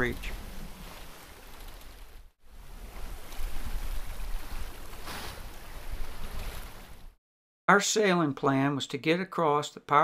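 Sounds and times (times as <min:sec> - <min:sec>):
water rushing along a hull: 0:00.0 - 0:07.2.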